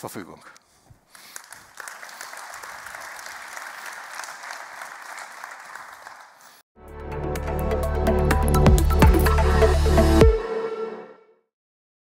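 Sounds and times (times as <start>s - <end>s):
audience applauding: 1.1s - 6.6s.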